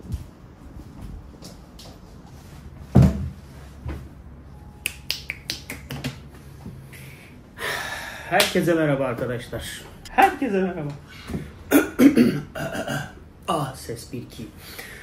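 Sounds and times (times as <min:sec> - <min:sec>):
finger snaps: 0:04.8 - 0:06.2.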